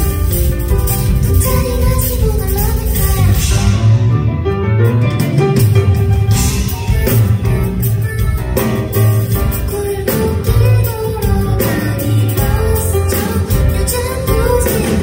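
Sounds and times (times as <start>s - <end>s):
band playing pop song: 0.0s - 15.0s
grand piano playing: 0.0s - 15.0s
strong bass line: 0.0s - 15.0s
woman singing: 1.2s - 3.8s, 7.1s - 15.0s
drum hits: 4.8s - 11.6s.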